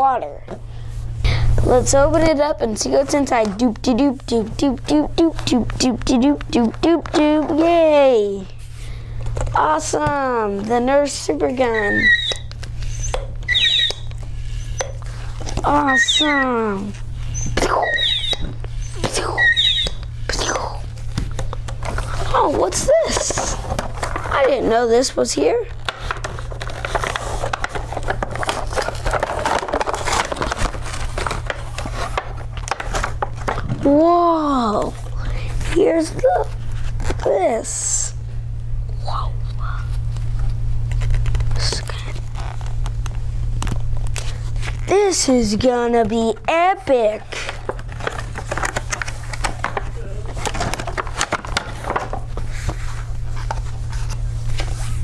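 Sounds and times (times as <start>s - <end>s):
steady low hum: 0.0s - 55.0s
cardboard tearing and rustling: 21.0s - 34.2s, 47.0s - 55.0s.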